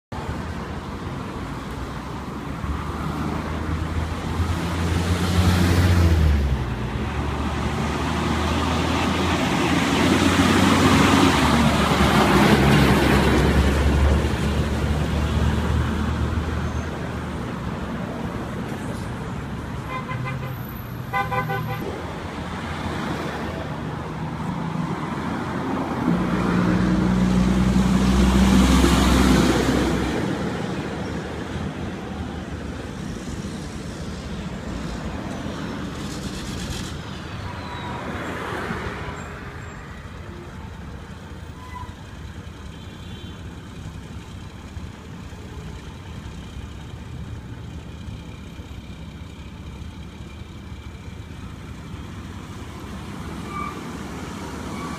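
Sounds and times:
car horn toots: 19.9s - 21.9s.

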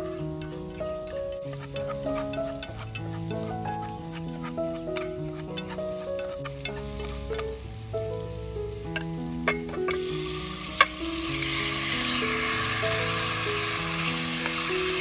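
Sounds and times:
background music: 0.0s - 15.0s
meat sizzling in hot pot: 0.0s - 15.0s
chopsticks clicking against pot: 0.3s - 7.6s.

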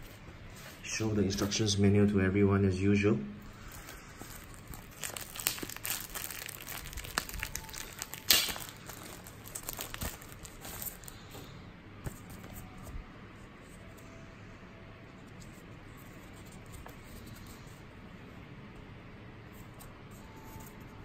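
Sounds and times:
plastic sleeve crinkling: 3.5s - 11.5s.

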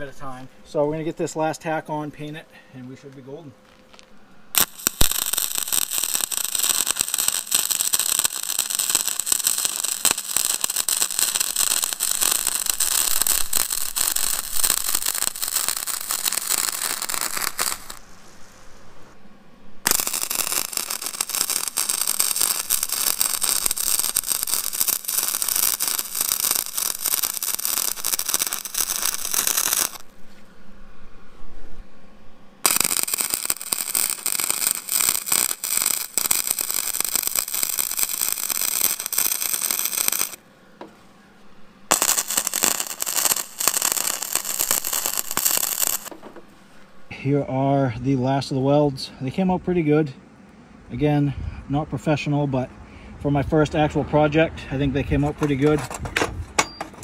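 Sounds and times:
welding arc crackling and sizzling: 3.8s - 18.6s, 19.8s - 30.2s, 32.6s - 40.4s, 41.9s - 46.4s.

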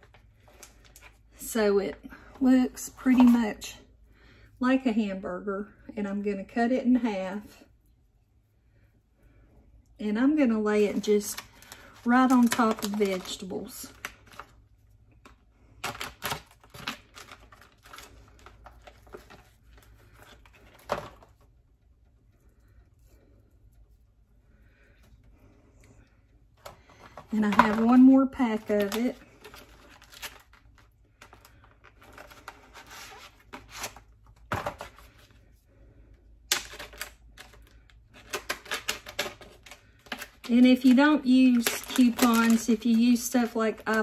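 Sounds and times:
plastic packaging crackling: 10.9s - 14.6s, 15.2s - 21.4s, 26.9s - 35.2s, 36.5s - 44.0s
plastic tray crackling: 11.2s - 14.5s, 38.2s - 44.0s.

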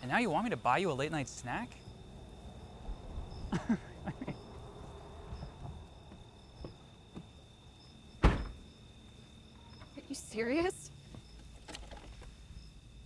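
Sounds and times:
night insects chirping: 0.0s - 13.0s
loud sudden thump: 8.2s - 8.6s.

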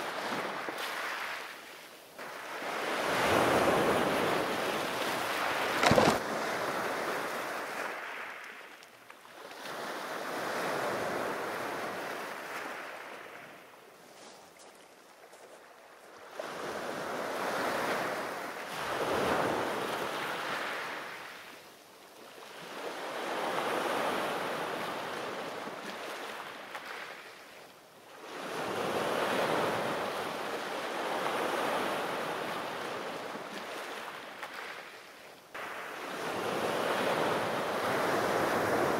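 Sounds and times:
waves washing over pebbles: 2.2s - 8.4s
sharp thump: 5.8s - 6.2s.

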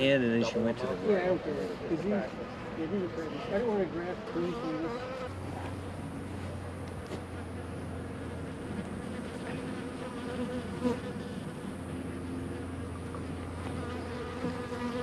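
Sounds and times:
honeybees buzzing: 3.6s - 6.8s, 7.4s - 15.0s.

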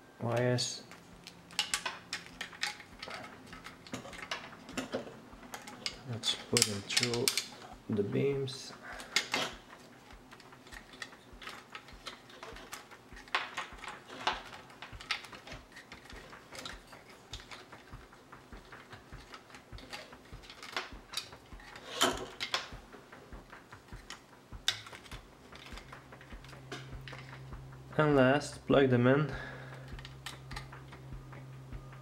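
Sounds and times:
clicks and rustles of cables: 0.3s - 32.0s.

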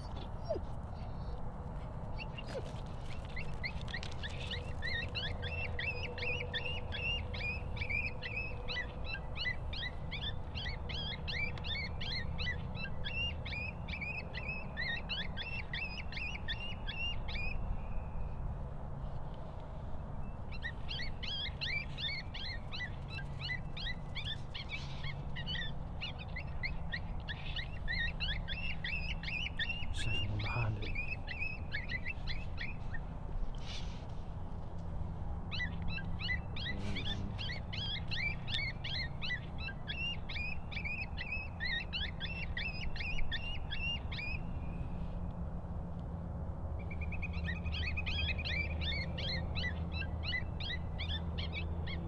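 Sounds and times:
high chirping calls: 20.5s - 33.0s.

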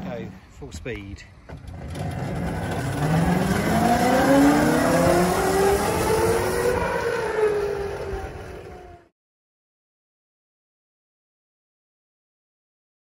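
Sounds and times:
electric motor whine: 1.6s - 9.0s.

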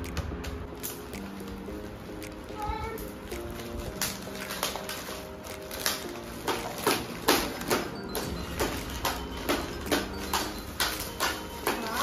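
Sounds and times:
soft background music: 0.0s - 12.0s
wrapping paper crinkling and tearing: 0.7s - 7.9s.

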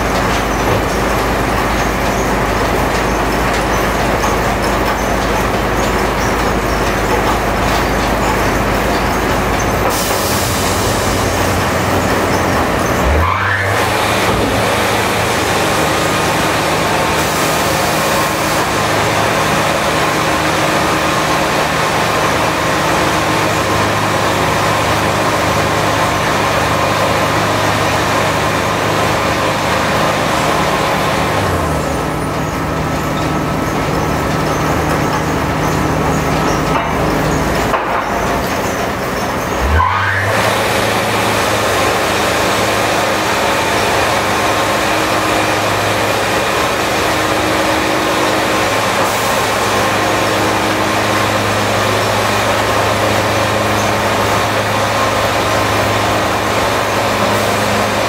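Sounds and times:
sawmill engine running: 0.0s - 58.0s.

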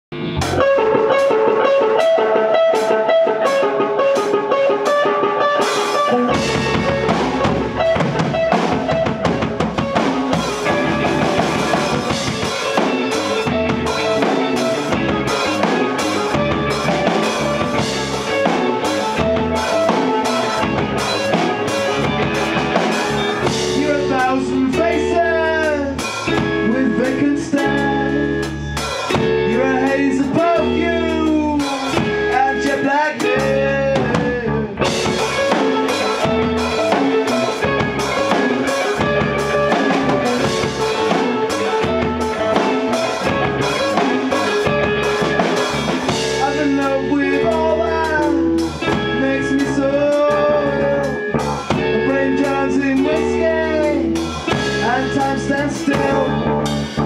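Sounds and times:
bass notes: 0.1s - 57.0s
drum kit beat: 0.1s - 57.0s
electric guitars: 0.1s - 57.0s
person singing: 22.8s - 28.6s, 29.2s - 57.0s.

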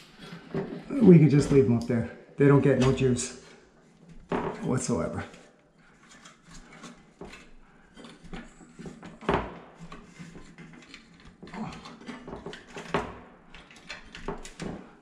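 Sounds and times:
hands working light fixture parts: 0.1s - 15.0s.

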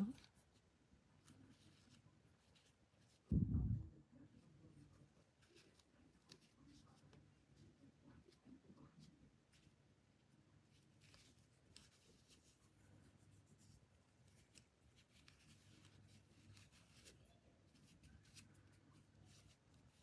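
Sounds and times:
small clicks and rubs: 0.0s - 3.3s, 5.0s - 9.8s, 10.6s - 20.0s
cord scratching and rustling: 0.0s - 3.6s, 10.6s - 20.0s
faint low hum: 0.0s - 20.0s.

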